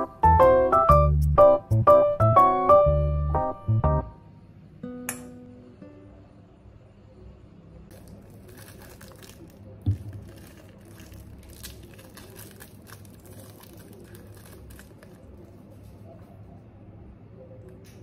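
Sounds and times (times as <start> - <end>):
straw wrapper crinkling and tearing: 7.9 - 16.0.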